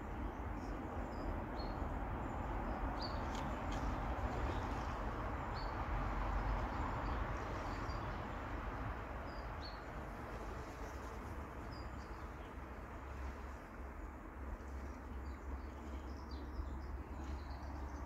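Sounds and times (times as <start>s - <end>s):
rushing river: 0.0s - 12.0s.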